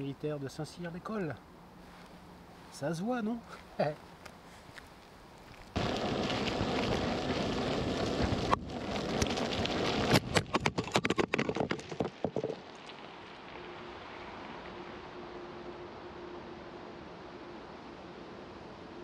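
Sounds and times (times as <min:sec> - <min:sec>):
quiet hiss: 0:00.0 - 0:10.3, 0:12.6 - 0:19.0
sharp crackles and clicks: 0:04.2 - 0:15.0
tyre rolling over gravel: 0:05.4 - 0:13.6.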